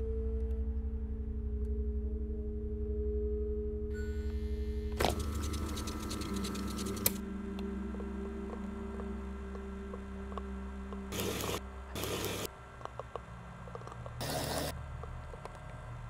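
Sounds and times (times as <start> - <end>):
low steady drone: 0.0 - 16.0
tape mechanism whirring: 5.0 - 7.2, 14.2 - 14.7
tape static bursts: 11.1 - 12.5, 14.2 - 14.7.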